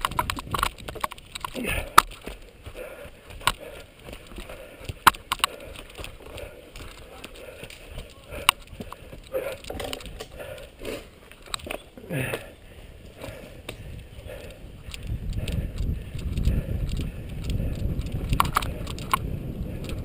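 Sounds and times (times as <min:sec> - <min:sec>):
bicycle tyres rolling on dirt: 0:00.0 - 0:20.0
bike rattling over bumps: 0:00.0 - 0:20.0.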